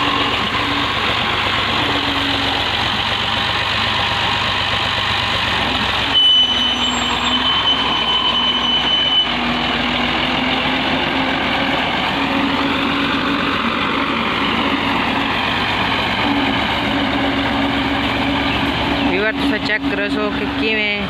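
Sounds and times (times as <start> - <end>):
tractor diesel engine running: 0.0 - 21.0
high-pitched tone: 6.0 - 11.0.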